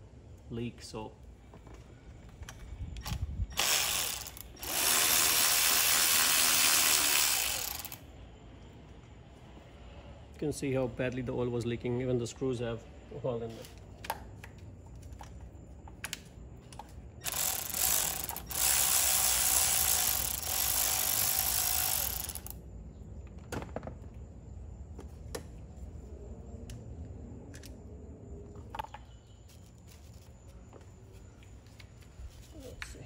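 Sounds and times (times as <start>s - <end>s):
tools and metal parts clicking: 3.0s - 8.0s, 17.2s - 22.6s
electric ratchet running: 3.5s - 8.0s, 17.2s - 22.6s.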